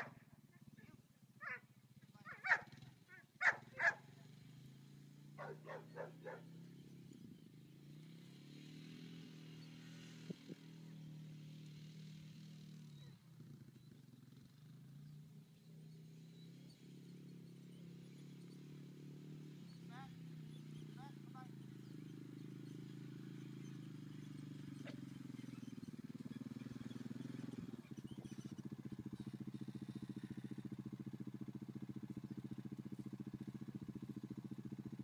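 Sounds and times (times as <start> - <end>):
quad bike engine idling: 0.0 - 35.0
dog barking: 1.4 - 1.6, 2.2 - 4.1, 5.4 - 6.5.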